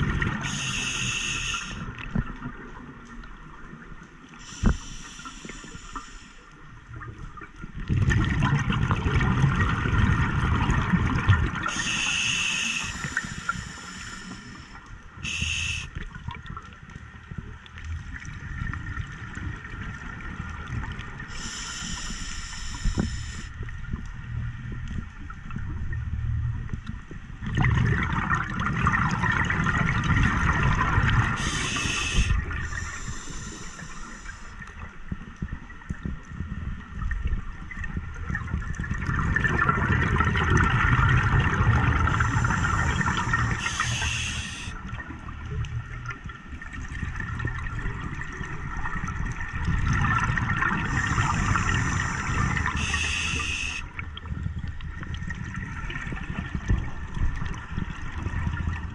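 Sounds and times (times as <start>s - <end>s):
exhaled bubbles rushing: 7.8s - 11.8s, 27.4s - 33.1s, 37.7s - 58.9s
regulator hissing: 15.2s - 15.9s, 42.2s - 44.7s, 50.9s - 53.8s.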